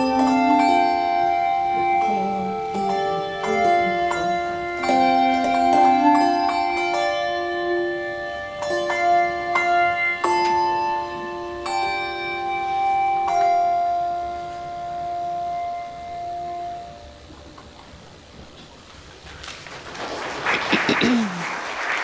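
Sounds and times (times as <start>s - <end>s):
handbell choir playing: 0.0s - 17.0s.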